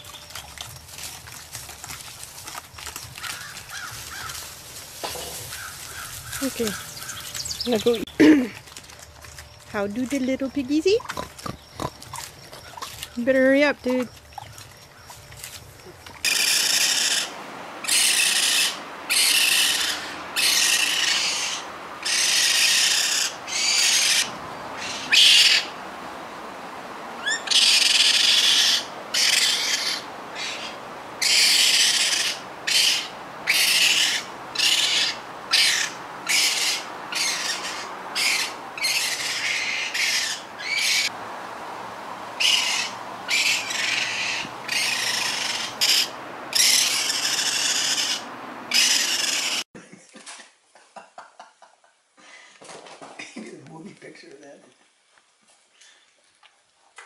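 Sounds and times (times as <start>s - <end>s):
baby raccoon breathy cries: 16.3s - 25.7s.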